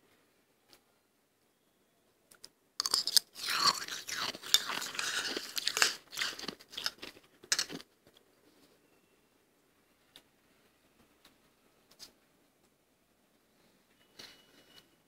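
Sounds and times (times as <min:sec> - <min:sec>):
frost crunching when chewed: 0:02.8 - 0:07.9.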